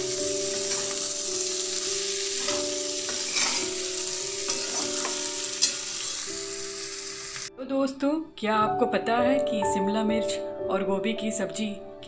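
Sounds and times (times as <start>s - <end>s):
vegetables sizzling in oil: 0.0s - 7.5s
spatula scraping a pan: 0.5s - 1.2s, 2.3s - 6.3s.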